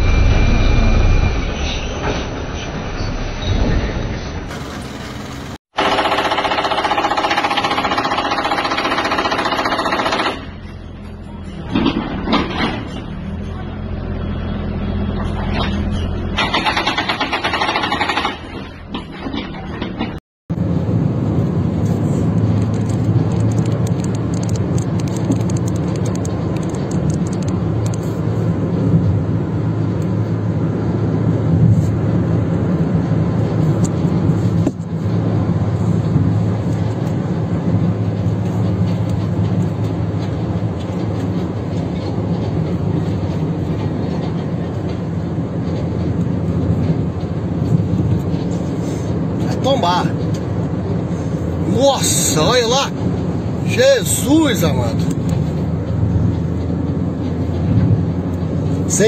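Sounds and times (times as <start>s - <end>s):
car engine and tyre drone: 0.0s - 6.0s, 18.3s - 53.9s.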